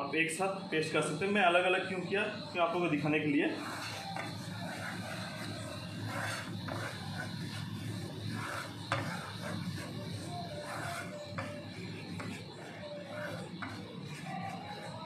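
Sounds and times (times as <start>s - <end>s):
wooden spoon scraping paste in pan: 3.5s - 15.0s.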